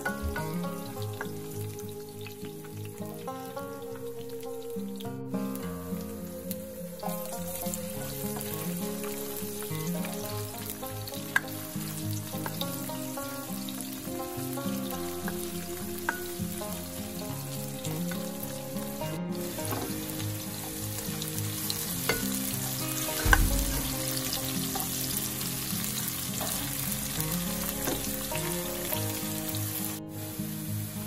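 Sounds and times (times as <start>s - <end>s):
onion sizzling in oil: 0.0s - 31.0s
spatula knocking pan: 23.1s - 25.0s.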